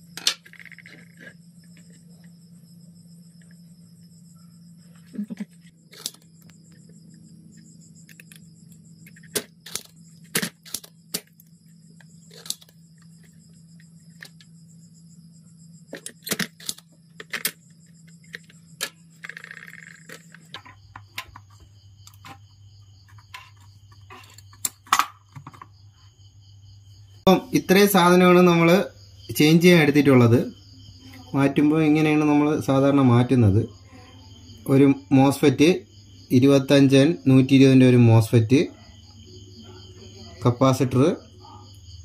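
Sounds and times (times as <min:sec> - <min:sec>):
steady low hum: 0:00.0 - 0:25.6
crickets trilling: 0:00.0 - 0:42.0.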